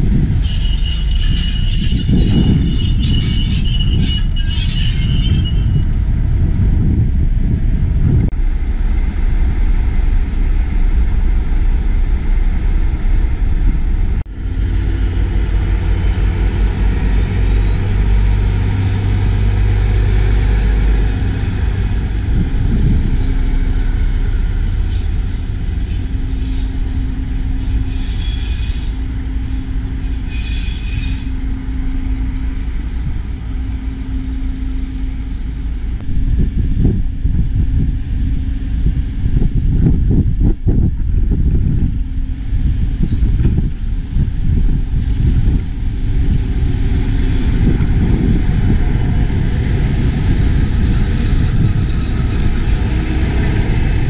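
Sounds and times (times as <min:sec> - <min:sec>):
train wheels squealing: 0:00.0 - 0:06.4, 0:15.9 - 0:21.6, 0:22.7 - 0:35.8, 0:45.5 - 0:54.0
diesel train rumble: 0:00.0 - 0:54.0.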